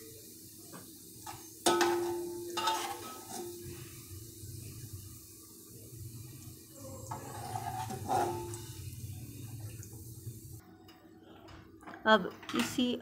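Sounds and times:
low hum and hiss: 0:00.0 - 0:11.8
metal spoon scraping pot: 0:01.7 - 0:03.7, 0:07.1 - 0:08.8.

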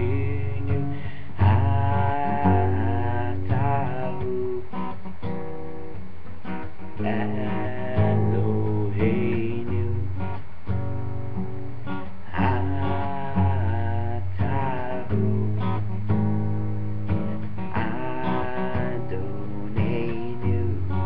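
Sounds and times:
man singing: 0:00.0 - 0:05.0, 0:06.7 - 0:10.4, 0:12.0 - 0:16.2, 0:17.2 - 0:21.0
acoustic guitar strumming: 0:00.0 - 0:21.0.

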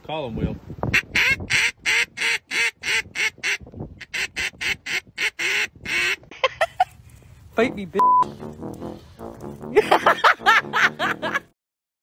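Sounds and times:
duck call quacking: 0:00.9 - 0:06.3.

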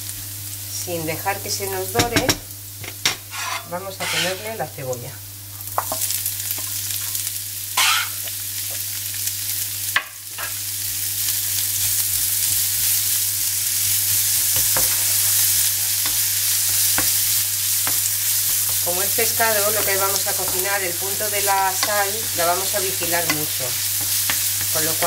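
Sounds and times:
garlic sizzling in oil: 0:00.0 - 0:25.0
spatula scraping pan: 0:03.2 - 0:04.6, 0:07.8 - 0:08.4.

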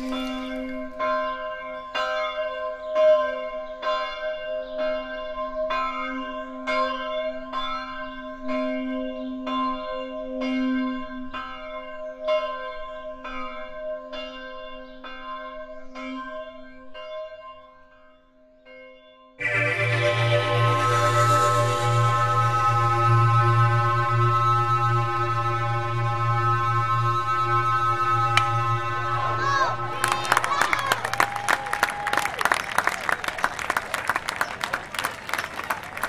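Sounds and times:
bell ringing: 0:19.4 - 0:22.4
music: 0:19.4 - 0:31.0.

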